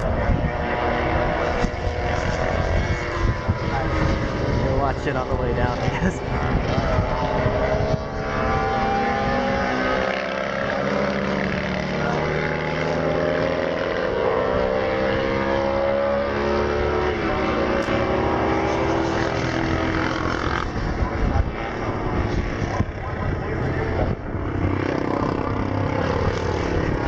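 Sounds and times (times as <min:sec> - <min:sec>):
wind rumble on microphone: 0:00.0 - 0:10.0, 0:17.1 - 0:27.0
racing motorcycle engines: 0:00.0 - 0:27.0.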